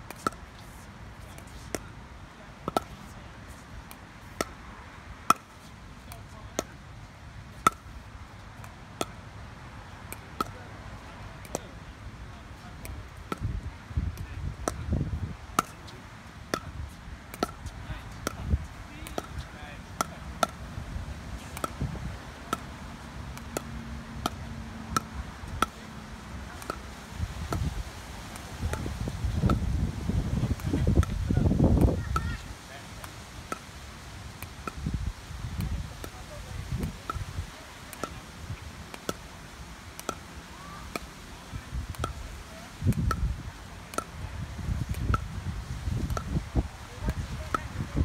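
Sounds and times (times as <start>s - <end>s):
paddles striking ball: 16.5s - 20.7s, 21.4s - 25.8s, 28.4s - 29.8s
ball bouncing on court: 17.3s - 20.6s.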